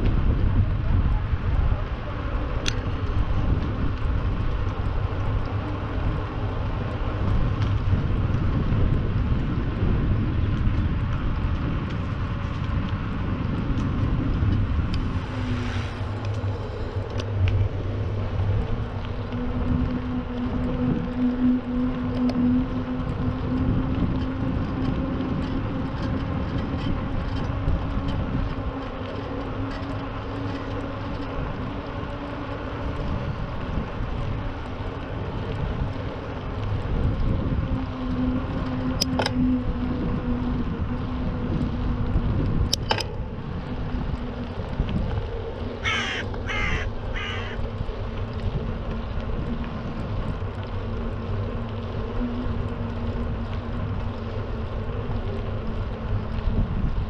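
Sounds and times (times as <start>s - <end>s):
low rumble: 0.0s - 29.6s
crow cawing: 45.8s - 47.6s.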